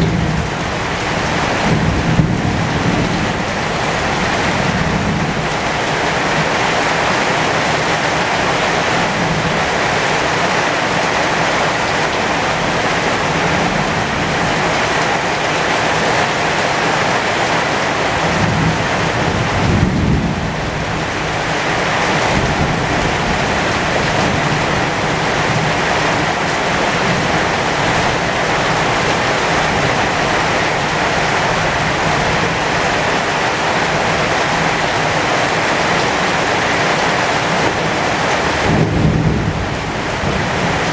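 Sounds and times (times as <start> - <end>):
low rumble of thunder: 0.0 - 5.8, 18.2 - 32.9, 37.7 - 40.9
heavy rain on leaves: 0.0 - 40.9.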